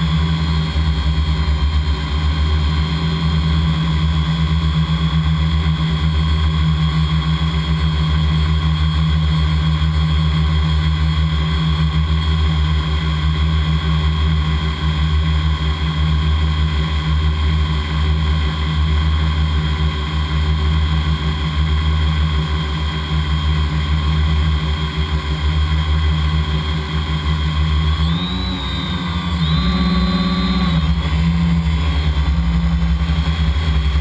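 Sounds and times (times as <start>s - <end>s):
drone propellers whining: 0.0s - 11.4s, 18.9s - 34.0s.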